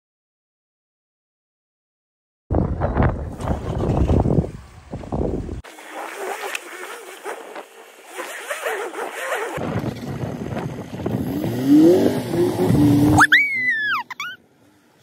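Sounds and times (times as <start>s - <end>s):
vehicle engine revving under load: 5.7s - 13.3s.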